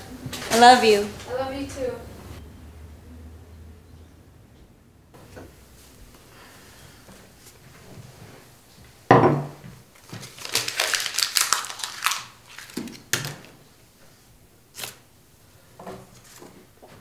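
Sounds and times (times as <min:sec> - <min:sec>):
crinkling and rustling: 0:09.7 - 0:14.2, 0:15.8 - 0:17.0.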